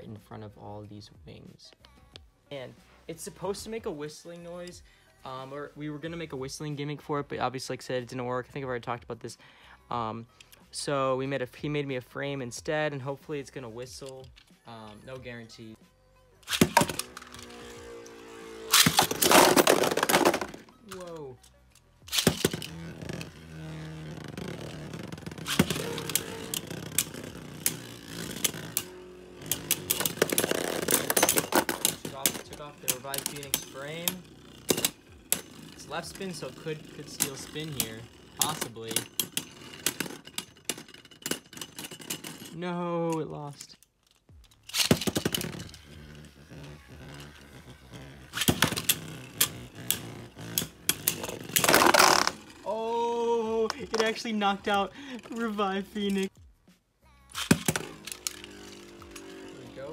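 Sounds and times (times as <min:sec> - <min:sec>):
spinning tops whirring: 0:16.4 - 0:21.4, 0:22.0 - 0:42.4, 0:44.6 - 0:56.3, 0:57.3 - 0:59.9
spinning tops clacking together: 0:16.4 - 0:42.5, 0:44.4 - 0:52.7, 0:57.3 - 0:59.9.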